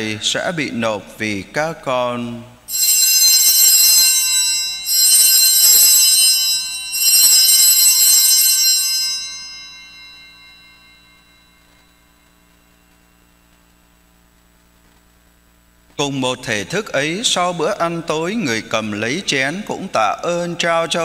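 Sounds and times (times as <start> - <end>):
altar bells ringing: 2.7 - 13.5.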